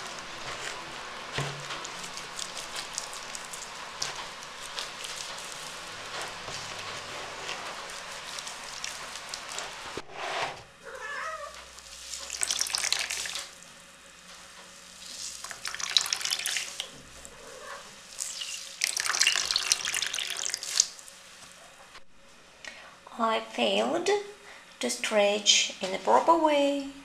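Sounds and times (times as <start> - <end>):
water splashing and squelching: 1.4 - 10.0, 11.9 - 13.6, 15.0 - 16.9, 18.2 - 20.9
water pouring into basin: 12.0 - 13.5, 15.0 - 16.9, 18.2 - 20.9.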